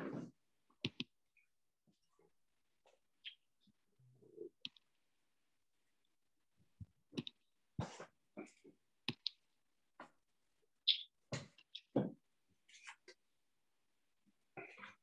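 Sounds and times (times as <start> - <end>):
computer mouse clicks: 0.8 - 1.1, 4.6 - 4.9, 7.2 - 7.4, 9.1 - 9.4.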